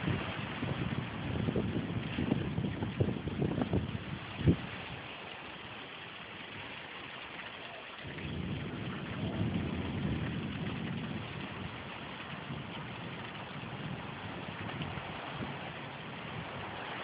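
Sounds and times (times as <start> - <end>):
rain falling: 0.0 - 17.0
thunder rumble: 8.1 - 17.0.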